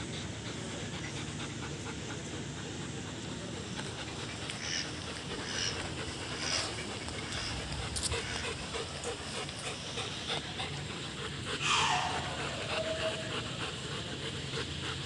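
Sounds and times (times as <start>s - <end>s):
dogs panting: 0.0s - 15.0s
dog whining: 11.5s - 13.8s.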